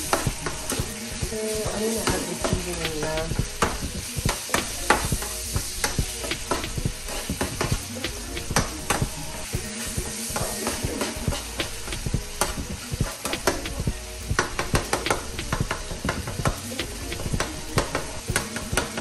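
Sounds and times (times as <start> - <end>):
metal utensil scraping a pan: 0.0 - 13.6
meat sizzling in a frying pan: 0.0 - 19.0.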